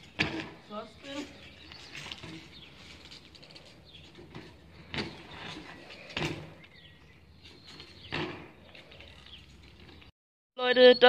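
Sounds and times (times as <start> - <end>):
bike landing thuds on pavement: 0.0 - 0.7, 4.3 - 6.9, 7.8 - 8.7
birds chirping: 0.0 - 11.0.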